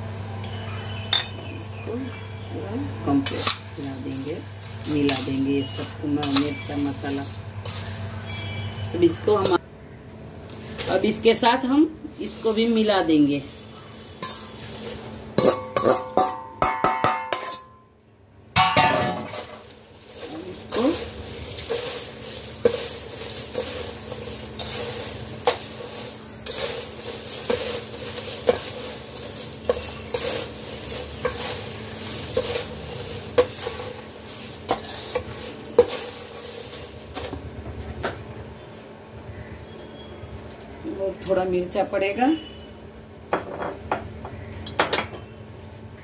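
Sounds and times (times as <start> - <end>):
crisp snack rustling: 19.3 - 37.4.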